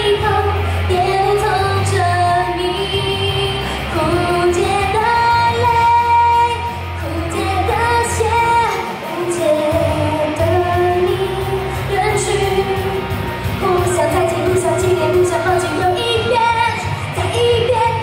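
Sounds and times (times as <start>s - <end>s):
pop backing track with bass: 0.0s - 18.0s
woman singing into microphone: 0.0s - 18.0s.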